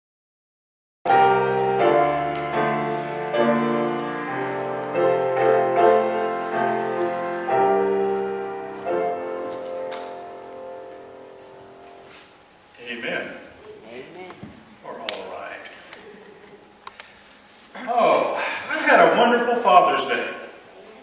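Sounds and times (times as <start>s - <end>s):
slow piano music: 1.1s - 12.8s.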